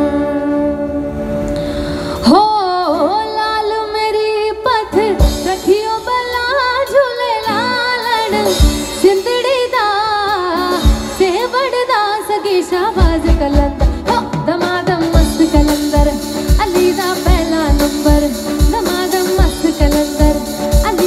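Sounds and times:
woman singing: 0.0s - 1.2s, 2.2s - 21.0s
acoustic guitar: 7.4s - 21.0s.

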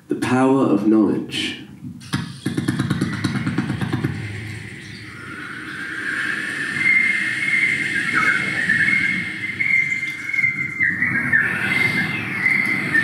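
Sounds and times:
high whistle-like vocal tone: 2.0s - 13.0s
low rumbling vocal noise: 2.0s - 13.0s.

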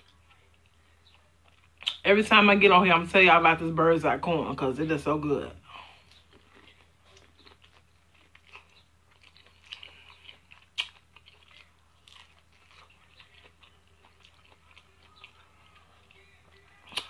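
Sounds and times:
person chewing corn on the cob: 0.0s - 2.0s, 5.7s - 17.0s.

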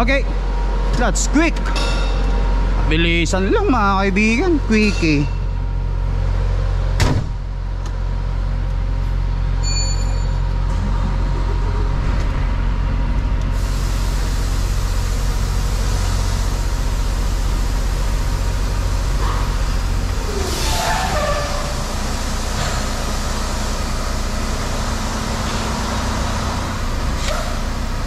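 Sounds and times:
diesel truck engine running: 0.0s - 28.0s
short beep: 9.6s - 10.4s.

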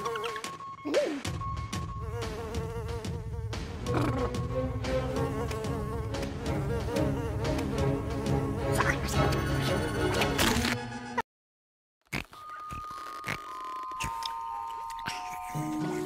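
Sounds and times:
background music score: 3.5s - 10.9s.

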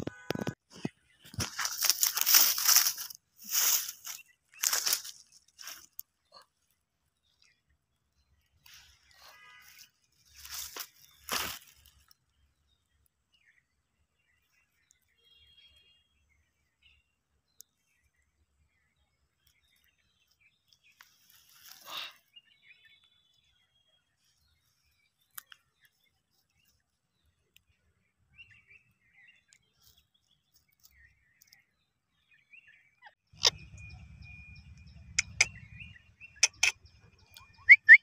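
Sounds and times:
parakeet shrill calls: 37.6s - 38.0s
thin steady whistle: 37.6s - 38.0s.

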